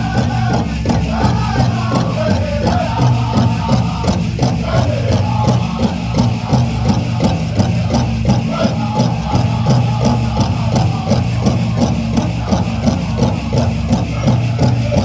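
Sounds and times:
high group singing: 0.0 - 15.0
steady drumbeat: 0.0 - 15.0.

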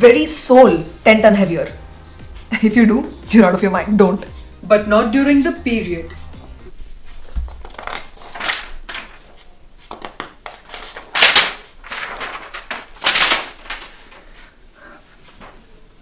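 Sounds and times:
paper sheets rustling and flapping: 7.0 - 16.0.

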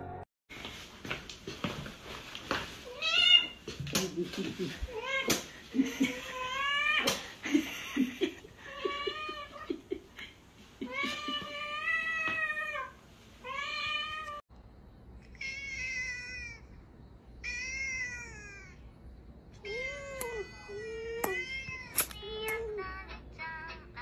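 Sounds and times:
cat meowing: 15.3 - 16.7, 17.4 - 18.8, 19.6 - 22.6
sharp click: 21.2 - 22.6.

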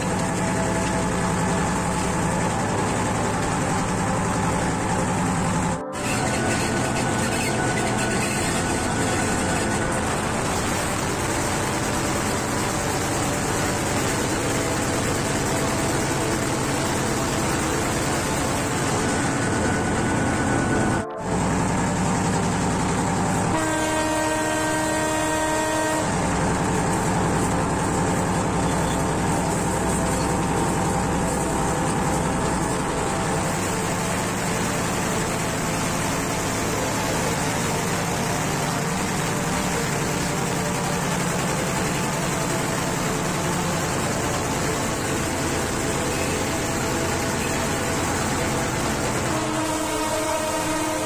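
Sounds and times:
diesel train rumble: 0.0 - 51.0
train horn blast: 4.8 - 14.8, 20.6 - 27.6, 45.7 - 51.0.

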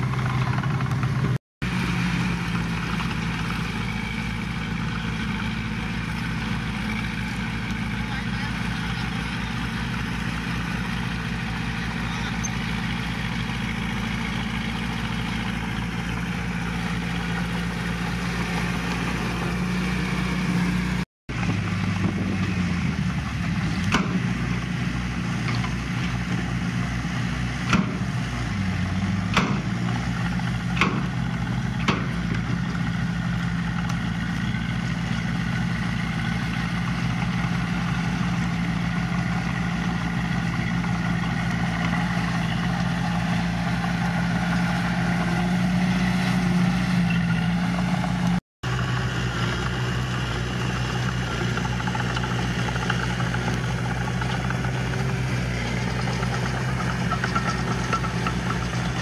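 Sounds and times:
diesel engine running: 0.0 - 59.0
sharp knocks: 29.3 - 29.7, 30.8 - 31.1, 31.8 - 32.2.

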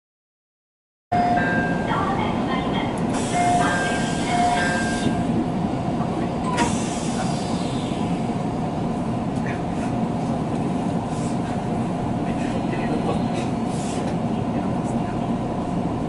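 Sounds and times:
train cab rumble and hum: 1.1 - 16.0.

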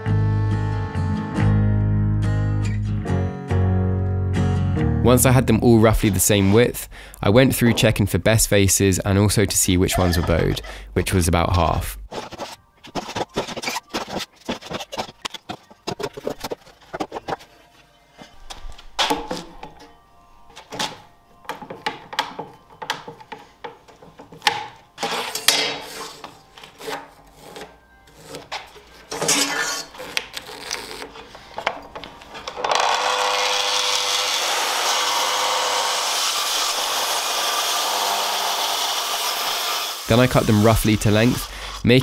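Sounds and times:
electric saw cutting wood: 32.2 - 42.0.

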